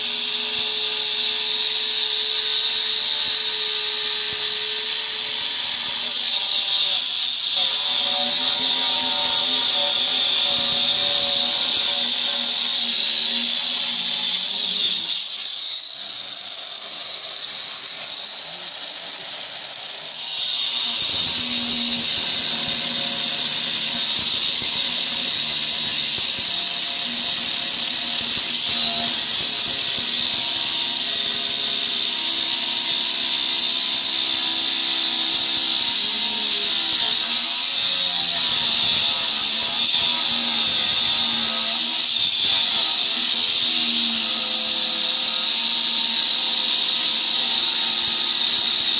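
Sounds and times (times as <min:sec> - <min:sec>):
angle grinder cutting stone: 0:00.0 - 0:48.9.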